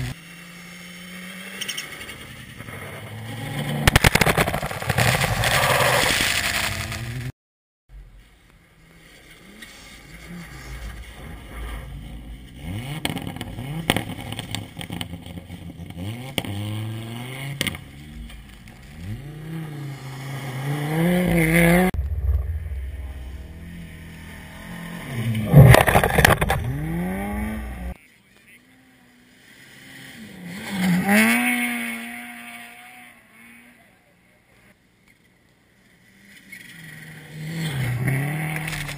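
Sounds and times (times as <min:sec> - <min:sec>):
rally car engine revving: 0:09.0 - 0:28.0, 0:29.7 - 0:33.7, 0:36.6 - 0:38.9.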